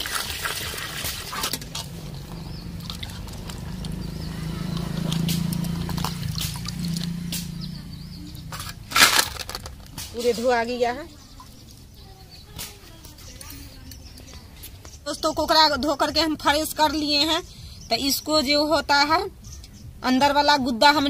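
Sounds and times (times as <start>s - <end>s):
water sloshing in a wok: 0.0s - 7.2s
water splash: 0.0s - 7.6s.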